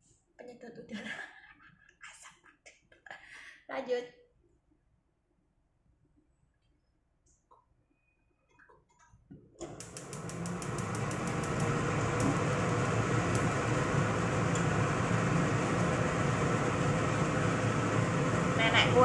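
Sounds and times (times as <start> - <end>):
extractor fan switch clicks: 9.6 - 12.4
extractor fan whirring: 9.6 - 19.0.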